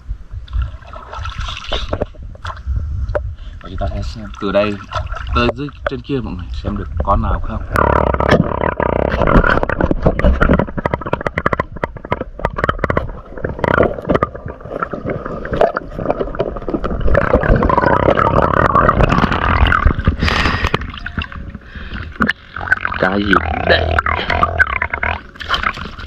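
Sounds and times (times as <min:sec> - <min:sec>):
muffled underwater water rumbling: 0:00.0 - 0:26.0
water splashing: 0:00.5 - 0:02.7, 0:03.6 - 0:26.0.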